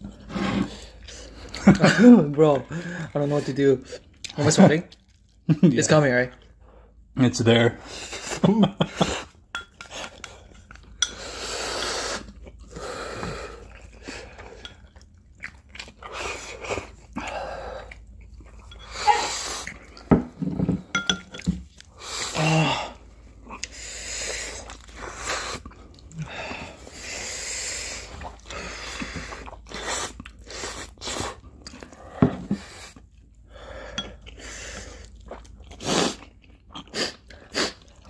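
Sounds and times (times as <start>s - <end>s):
slurping and chewing noodles: 0.0s - 5.5s, 9.0s - 20.1s, 21.3s - 38.0s.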